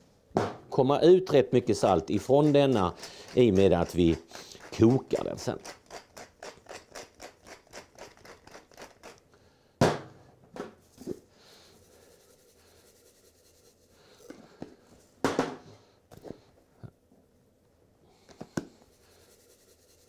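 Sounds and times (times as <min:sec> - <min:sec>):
spice shaker rattling: 0:01.7 - 0:09.3, 0:18.8 - 0:20.0
salt mill grinding clicks: 0:02.0 - 0:09.2.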